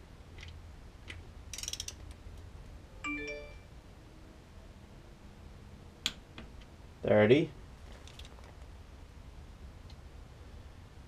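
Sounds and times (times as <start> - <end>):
torque wrench ratchet clicking: 1.5 - 2.0.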